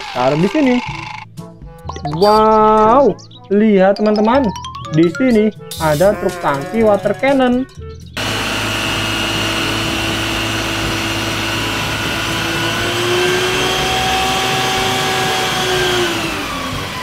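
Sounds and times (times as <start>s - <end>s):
truck engine and pump whining: 8.2s - 17.0s.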